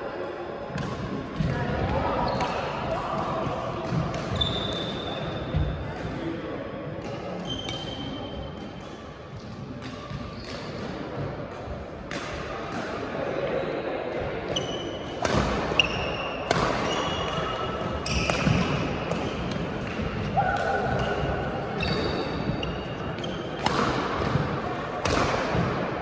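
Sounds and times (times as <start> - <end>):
shoes squeaking on floor: 4.3 - 5.6, 7.4 - 8.3, 21.0 - 23.6
racket hitting shuttlecock: 14.5 - 25.9.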